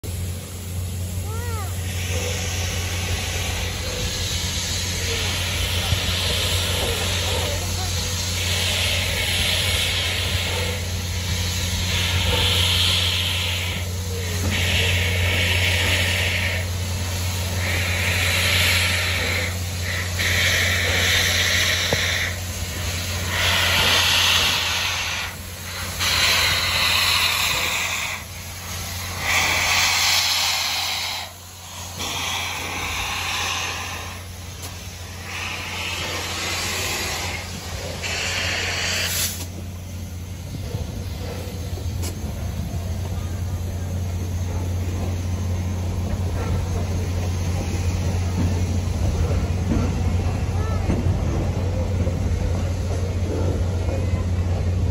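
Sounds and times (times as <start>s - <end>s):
steam hissing: 0.0s - 54.9s.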